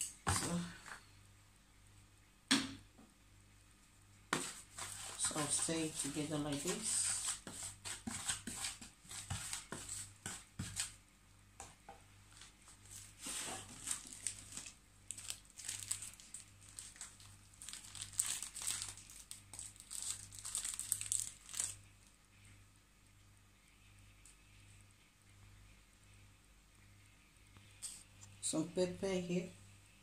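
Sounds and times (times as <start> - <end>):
wooden spoon scraping plastic bowl: 4.4 - 11.0, 13.0 - 14.0
plastic bag crinkling: 12.3 - 22.0.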